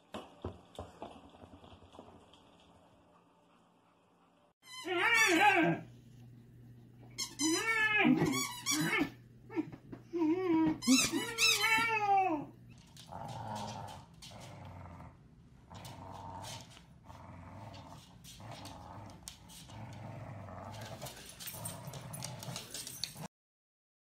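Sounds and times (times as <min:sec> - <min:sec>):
dogs growling playfully: 0:12.4 - 0:23.3.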